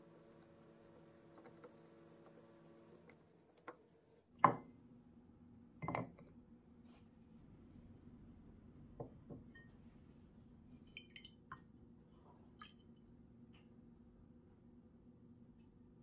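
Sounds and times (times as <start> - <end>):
wooden spoon tapping glass: 5.8 - 6.2.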